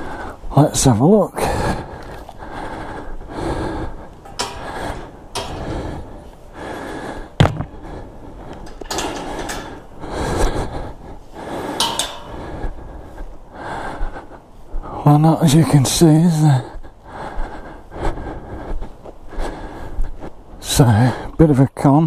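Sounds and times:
metal gate clanking: 4.2 - 6.4, 8.6 - 10.1, 11.7 - 12.6.

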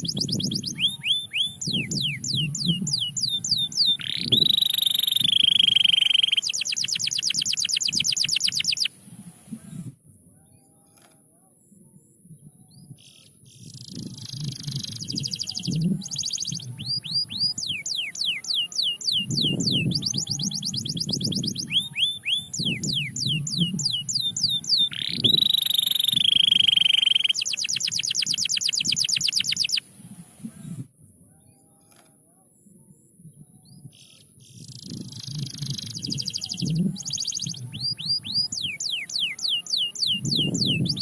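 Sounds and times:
canary singing: 0.0 - 9.0, 13.1 - 29.9, 34.6 - 41.0.

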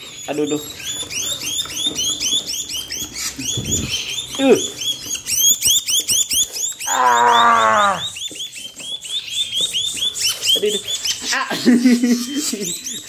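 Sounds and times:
young songbirds chirping: 0.0 - 13.0
loud drawn-out low cry: 6.9 - 8.1.

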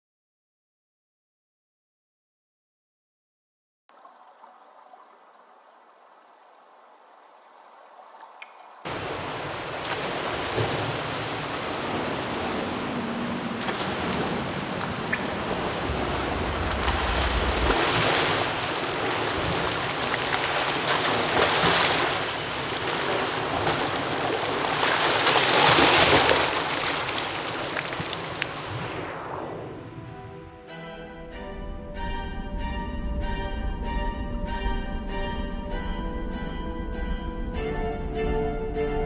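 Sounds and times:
swimmer splashing in pool: 8.9 - 28.6.

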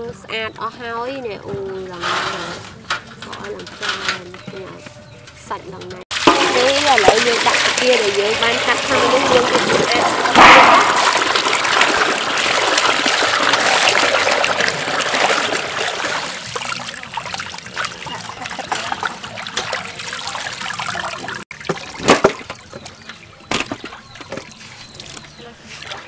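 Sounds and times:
hands sloshing shrimp in water: 6.1 - 22.8
water pouring into metal basin: 6.1 - 23.2.

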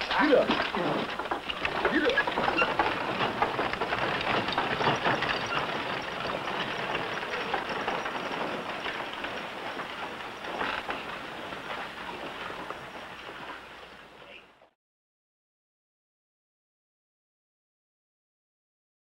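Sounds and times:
horse hooves and wagon clattering: 0.0 - 14.7.

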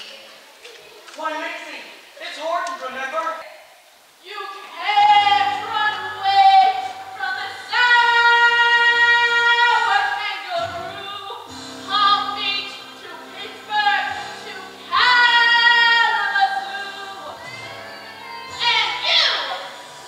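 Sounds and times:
woman singing: 4.2 - 19.9.

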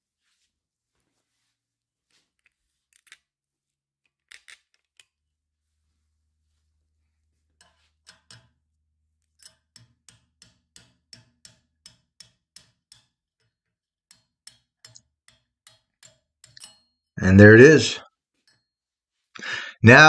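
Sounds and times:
hammer tapping on steel punch: 9.6 - 13.2.

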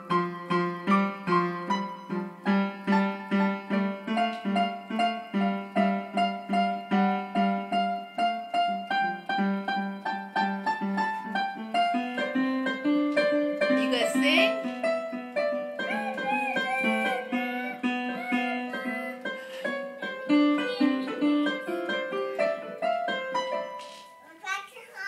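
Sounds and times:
child playing piano: 0.0 - 25.0.

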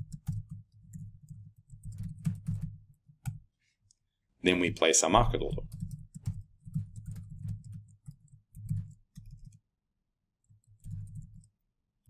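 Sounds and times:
laptop keyboard typing: 0.0 - 3.5, 5.4 - 9.6, 10.4 - 11.6.

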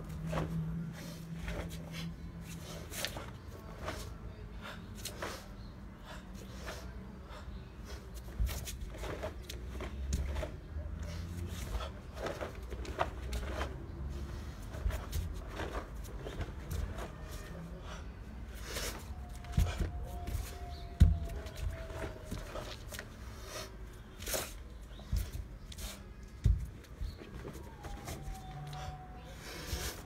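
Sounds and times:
bare feet shifting on concrete: 7.9 - 18.0, 18.6 - 28.8.

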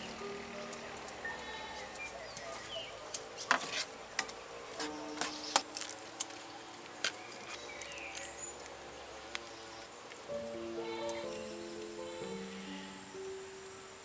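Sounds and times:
faint background music: 0.0 - 14.0
high-pitched insect trill: 10.5 - 14.0.

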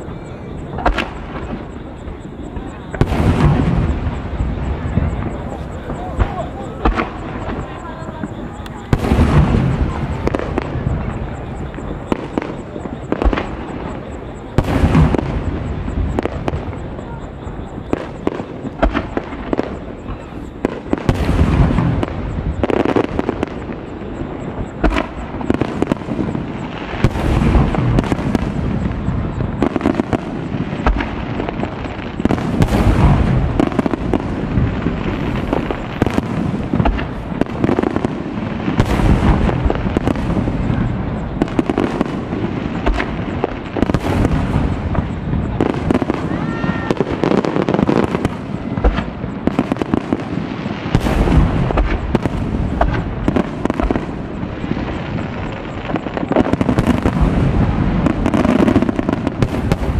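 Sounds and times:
firework shells bursting: 17.9 - 59.9.

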